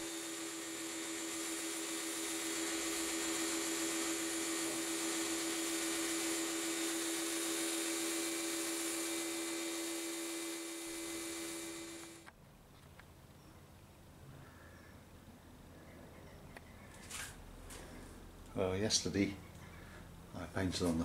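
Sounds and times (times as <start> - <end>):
pressure washer humming: 0.0 - 12.3.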